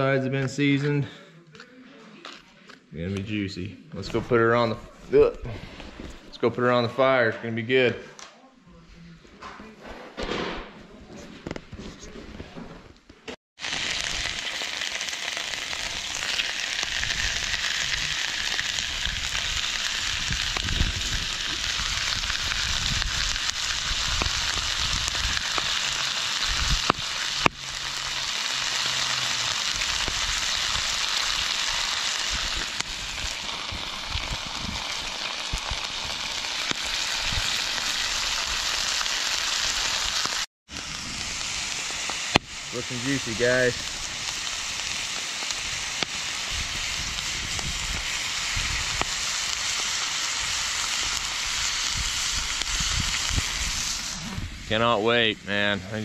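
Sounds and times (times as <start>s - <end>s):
food sizzling in a skillet: 13.6s - 56.0s.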